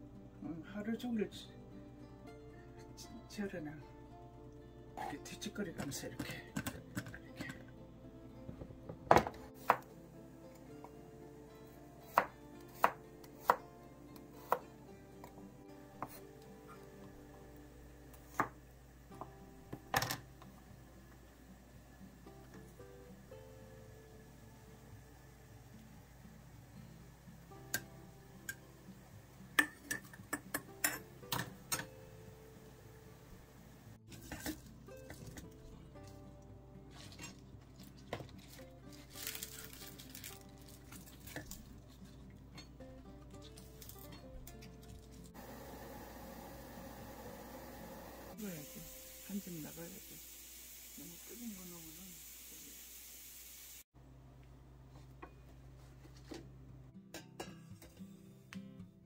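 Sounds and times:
soft background music: 0.0s - 50.0s
rustle of stems in jar: 37.8s - 41.6s.

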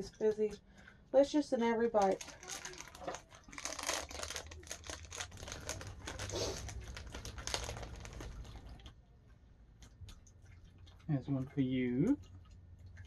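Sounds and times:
plastic bag crinkling: 1.9s - 8.9s.

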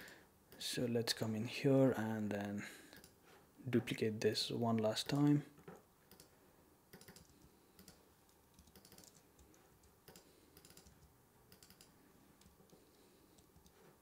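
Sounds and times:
faint keyboard typing: 2.9s - 3.4s, 4.8s - 14.0s.

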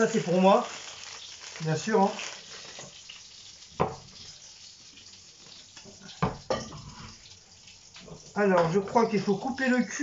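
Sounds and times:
faint steady hiss: 0.0s - 10.0s
knocks on wooden cutting board: 3.8s - 4.0s, 6.2s - 6.7s.

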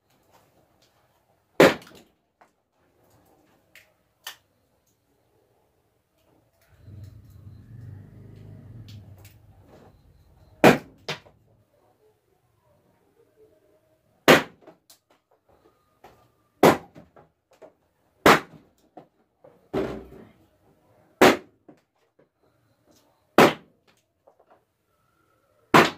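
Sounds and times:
balloons bursting: 14.2s - 14.6s, 16.6s - 17.0s.

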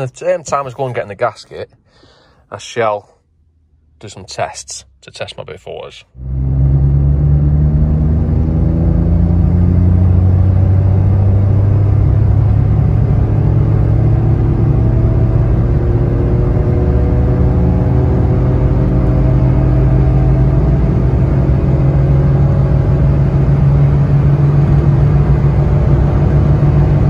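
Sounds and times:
car engine accelerating hard: 6.1s - 27.0s.

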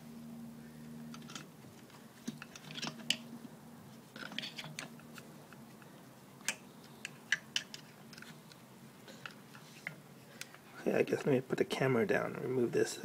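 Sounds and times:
small metallic clicks and rattles: 1.1s - 3.3s, 4.1s - 10.6s.

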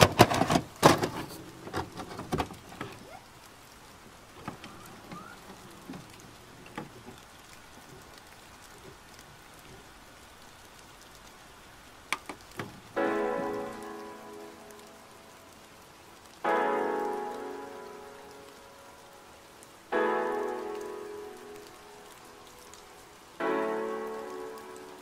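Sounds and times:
rain falling: 0.0s - 25.0s
piano chord: 13.0s - 15.5s, 16.4s - 19.3s, 23.4s - 25.0s.

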